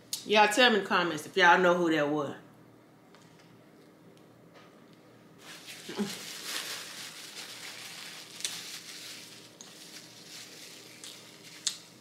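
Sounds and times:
paper napkin rustling and crinkling: 0:05.4 - 0:12.0.

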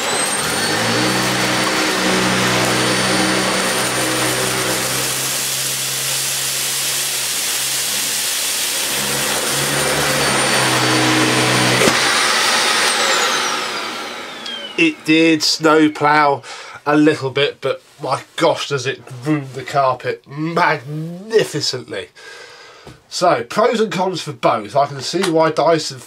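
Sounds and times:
vacuum cleaner whine and suction: 0:00.0 - 0:16.1.

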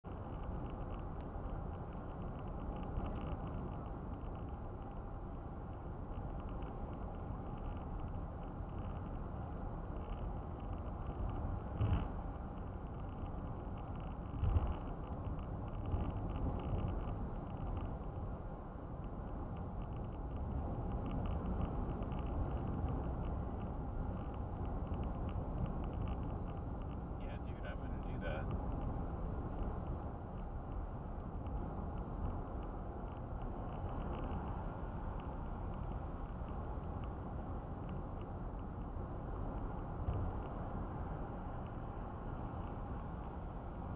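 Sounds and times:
car road and tyre noise: 0:00.0 - 0:43.9
faint light ticks: 0:00.1 - 0:43.9.

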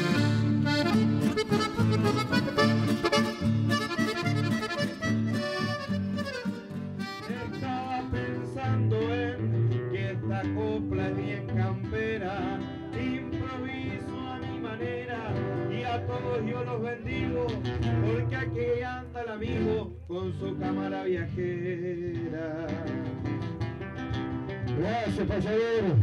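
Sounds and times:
person singing: 0:00.0 - 0:03.4, 0:07.1 - 0:23.2
strummed guitar: 0:00.0 - 0:26.0.

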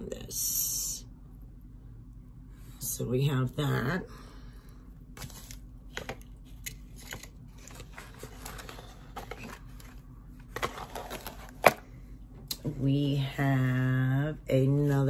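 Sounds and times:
paper packing rustling: 0:05.2 - 0:06.2, 0:06.9 - 0:11.8.

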